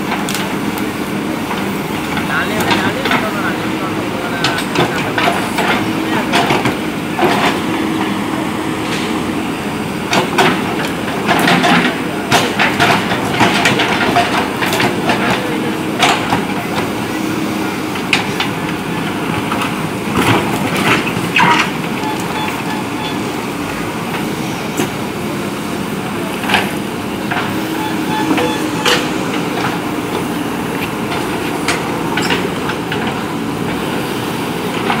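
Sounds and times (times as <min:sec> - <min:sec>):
diesel engine under load: 0:00.0 - 0:35.0
sharp clanks and knocks: 0:10.1 - 0:16.9, 0:26.4 - 0:29.8, 0:31.0 - 0:33.2.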